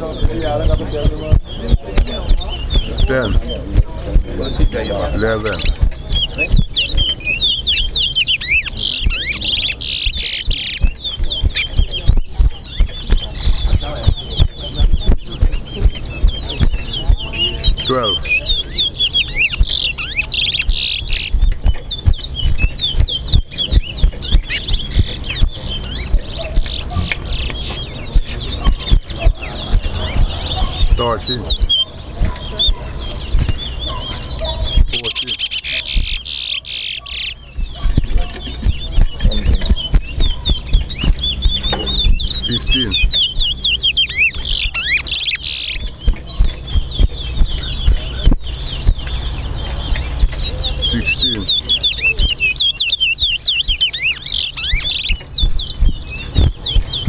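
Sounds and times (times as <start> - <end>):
soft low knocks: 0.0 - 7.2, 9.0 - 18.8, 19.5 - 35.0, 45.8 - 51.5
finch singing whistled notes: 0.0 - 57.0.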